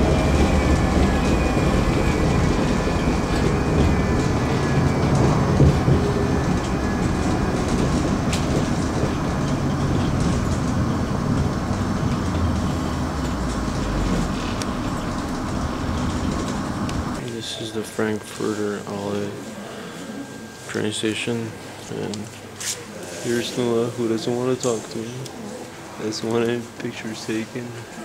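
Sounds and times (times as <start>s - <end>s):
train rumbling on track: 0.0s - 17.3s.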